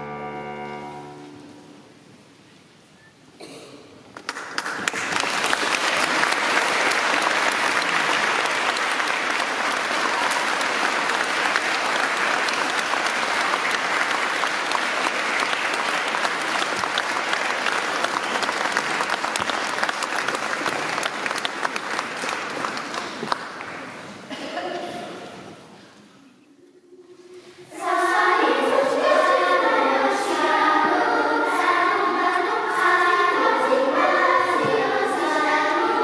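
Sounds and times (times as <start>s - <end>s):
audience applauding: 4.1s - 24.4s.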